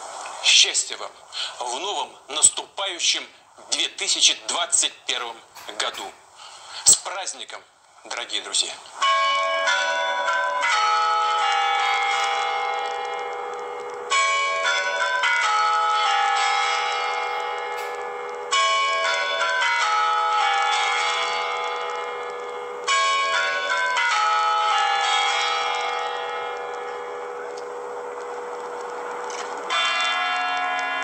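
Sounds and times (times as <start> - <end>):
tower bells chiming a melody: 9.0 - 31.0.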